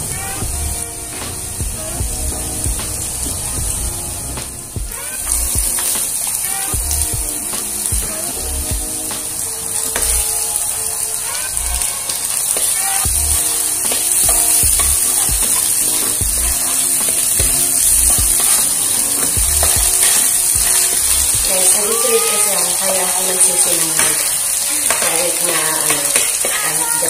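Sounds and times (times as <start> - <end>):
background music: 0.0 - 27.0
garlic sizzling in hot oil: 0.0 - 27.0
metal spatula scraping pan: 9.4 - 27.0.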